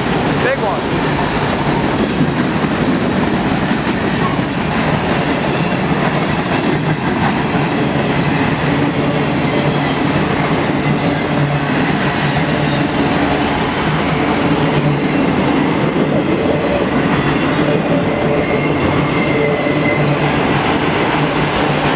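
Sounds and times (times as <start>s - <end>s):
train wheels on rails clattering: 0.0s - 21.9s.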